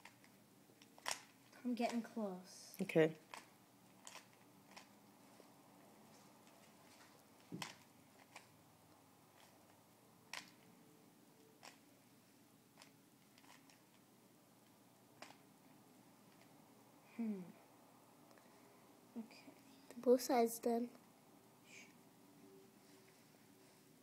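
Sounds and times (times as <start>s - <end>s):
puzzle cube plastic clicks: 0.0s - 2.0s, 3.3s - 4.9s, 7.6s - 8.5s, 10.3s - 10.6s, 11.6s - 11.8s, 12.8s - 13.9s.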